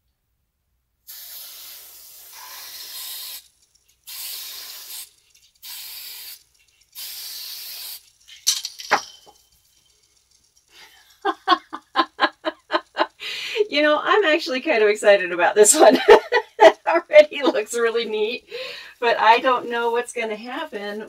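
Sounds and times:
spray can hissing: 0:01.1 - 0:11.8
sharp knocks: 0:08.4 - 0:09.4.

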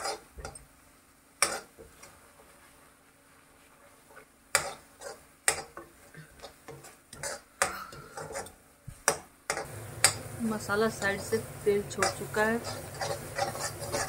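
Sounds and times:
spatula scraping a pan: 0:00.0 - 0:00.7, 0:01.4 - 0:10.2, 0:10.9 - 0:14.0.

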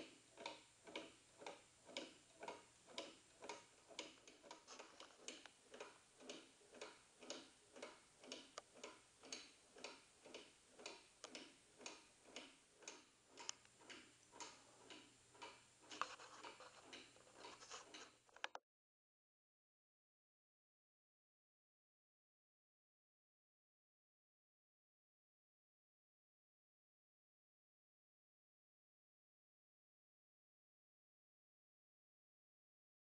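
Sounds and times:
loud clock click: 0:00.0 - 0:18.1
pendulum clock ticking: 0:00.0 - 0:18.2.

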